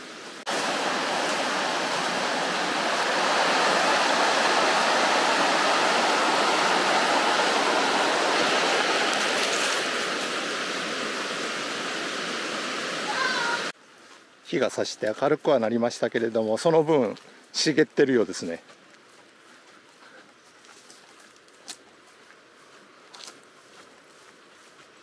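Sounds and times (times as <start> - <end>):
stream water rushing: 0.0 - 13.8.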